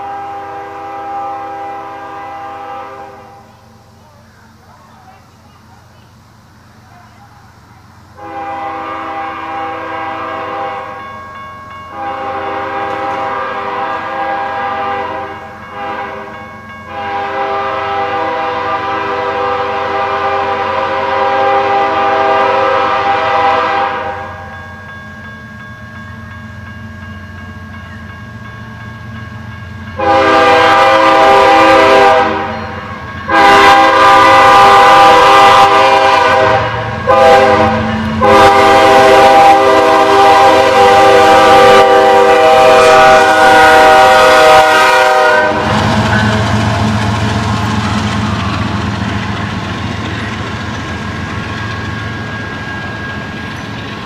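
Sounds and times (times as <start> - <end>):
locomotive horn blasts: 0.0 - 3.6, 8.2 - 11.0, 11.9 - 24.5, 30.0 - 48.8
train rumbling: 0.0 - 54.0.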